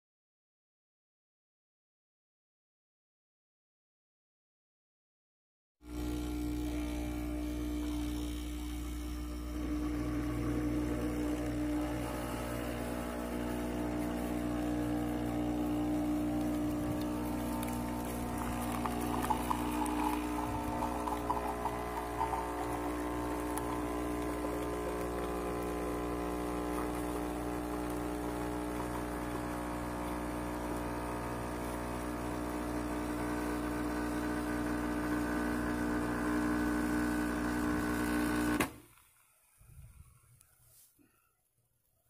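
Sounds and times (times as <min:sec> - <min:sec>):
coffee machine pump humming: 0:05.8 - 0:39.0
liquid pouring into cup: 0:09.6 - 0:29.5.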